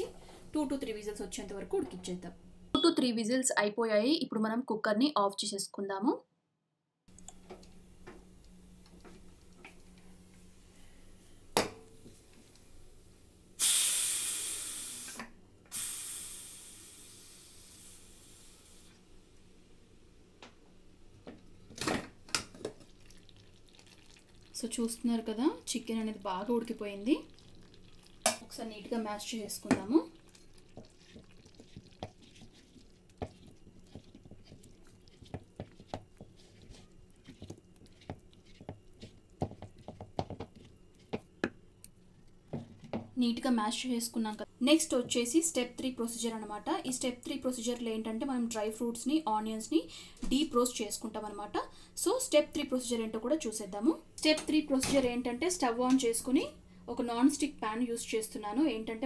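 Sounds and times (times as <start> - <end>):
pressure cooker steam hissing: 13.6 - 18.9
masher squelching thick food: 29.6 - 41.3.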